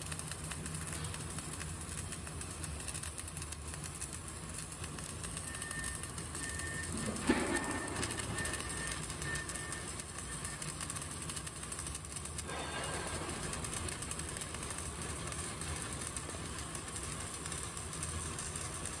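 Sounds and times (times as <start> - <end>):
sharp welding crack: 0.0 - 19.0
welding arc crackling buzz: 0.0 - 19.0.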